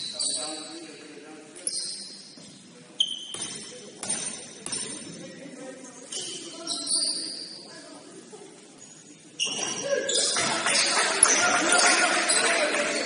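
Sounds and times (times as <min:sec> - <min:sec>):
shoes squeaking on gym floor: 0:00.0 - 0:07.8, 0:08.7 - 0:10.5
murmur of voices: 0:00.0 - 0:13.0.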